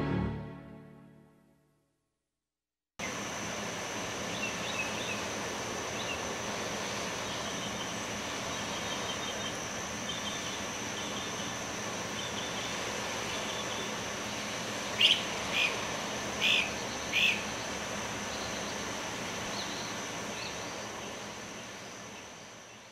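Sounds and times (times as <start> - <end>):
high steady whine: 3.0 - 22.9
birds chirping: 4.2 - 6.3, 7.2 - 22.9.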